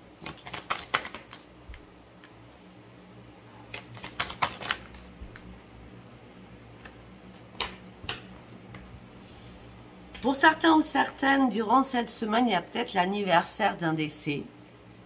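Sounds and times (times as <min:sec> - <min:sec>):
cards tapping on a table: 0:07.5 - 0:08.3.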